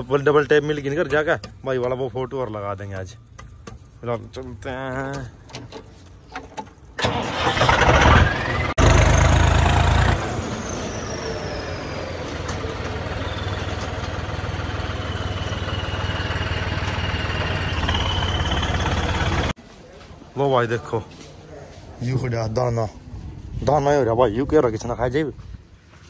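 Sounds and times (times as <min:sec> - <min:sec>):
vehicle engine starting: 0:05.0 - 0:19.6
engine running steadily: 0:07.0 - 0:19.6.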